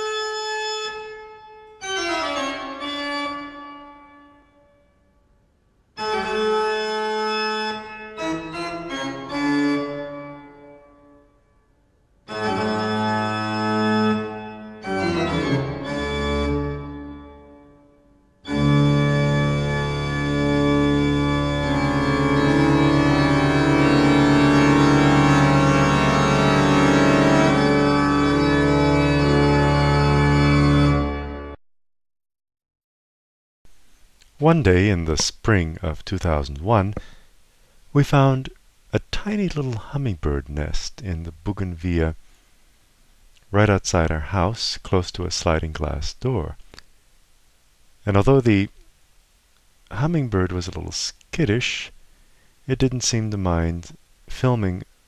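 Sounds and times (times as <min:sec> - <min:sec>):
organ-like keyboard chords: 0:00.0 - 0:04.9, 0:06.0 - 0:11.6, 0:12.2 - 0:31.6.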